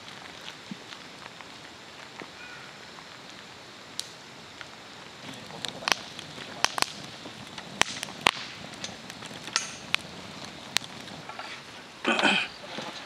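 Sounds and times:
fire crackling: 0:00.0 - 0:13.0
low hiss: 0:00.0 - 0:13.0
sharp pops: 0:04.0 - 0:11.7.

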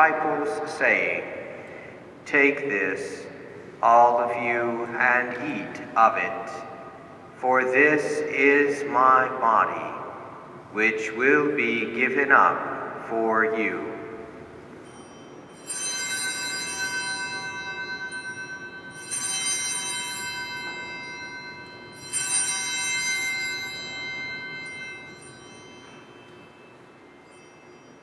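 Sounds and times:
altar bell ringing: 0:13.9 - 0:28.0.

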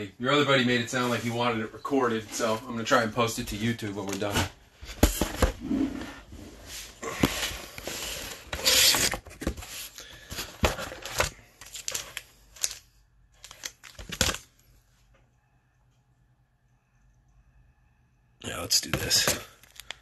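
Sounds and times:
trading cards clicking and rustling: 0:10.4 - 0:14.6, 0:18.8 - 0:20.0.

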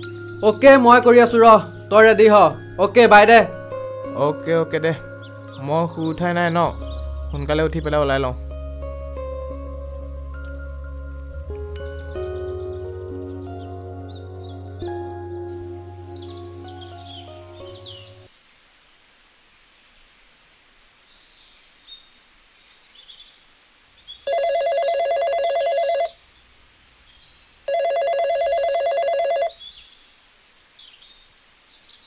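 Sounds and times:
birds chirping faintly: 0:00.0 - 0:24.4
mobile phone ringing: 0:24.3 - 0:26.2, 0:27.7 - 0:29.6.

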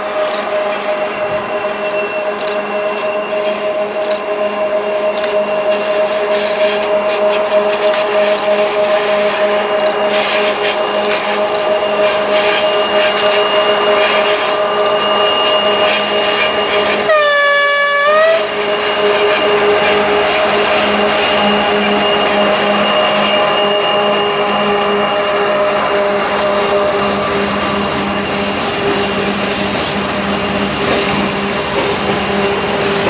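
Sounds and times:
diesel locomotive engine drone: 0:00.0 - 0:33.0
locomotive horn: 0:11.9 - 0:27.6.

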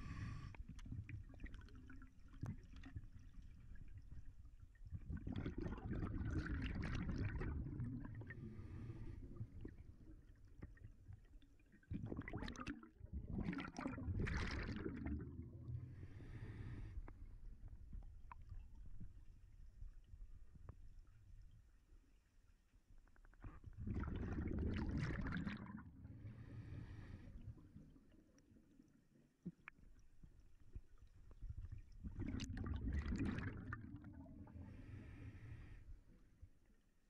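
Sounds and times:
underwater breath bubbles: 0:00.0 - 0:03.0, 0:05.0 - 0:10.0, 0:11.9 - 0:17.4, 0:23.7 - 0:28.1, 0:32.0 - 0:36.1.

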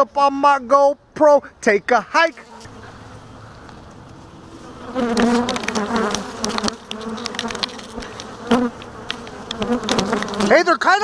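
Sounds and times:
bees buzzing: 0:02.2 - 0:11.0
sharp ticks: 0:05.1 - 0:10.4.

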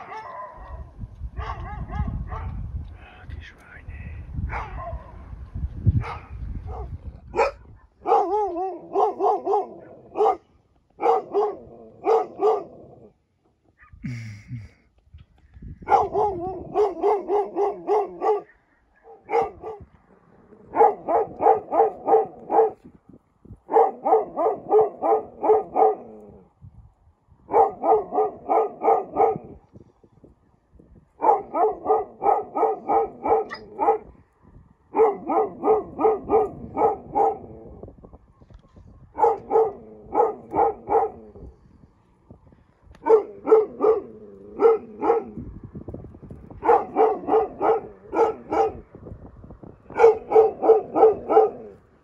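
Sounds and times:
dog barking: 0:00.0 - 0:02.6, 0:04.5 - 0:05.3, 0:06.0 - 0:12.9, 0:15.8 - 0:19.9, 0:20.6 - 0:22.8, 0:23.7 - 0:26.2, 0:27.5 - 0:29.6, 0:31.2 - 0:34.2, 0:34.9 - 0:37.7, 0:39.1 - 0:41.5, 0:43.0 - 0:45.4, 0:46.6 - 0:48.8, 0:49.9 - 0:51.8.

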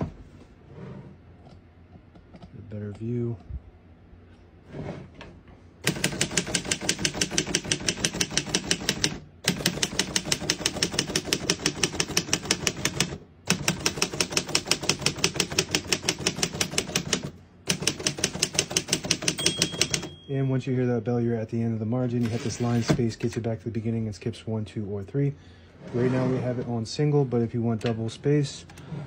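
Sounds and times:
typewriter keys clacking: 0:05.9 - 0:20.2.

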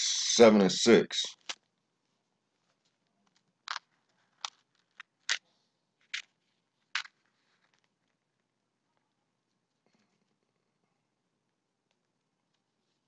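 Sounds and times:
faint room hiss: 0:00.0 - 0:04.4.

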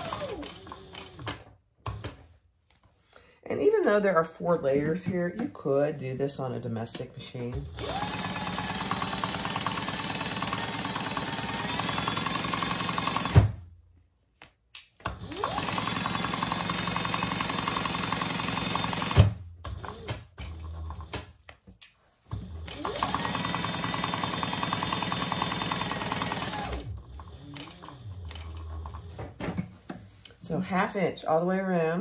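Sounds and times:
sewing machine stitching: 0:00.0 - 0:02.2, 0:07.5 - 0:13.6, 0:15.1 - 0:21.4, 0:22.4 - 0:29.3.

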